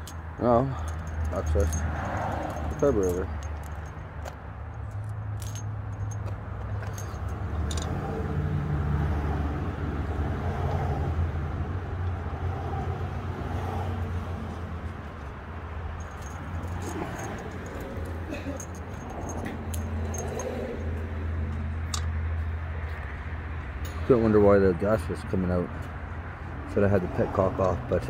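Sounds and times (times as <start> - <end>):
light metallic clinks: 0.0 - 8.0, 16.0 - 20.9.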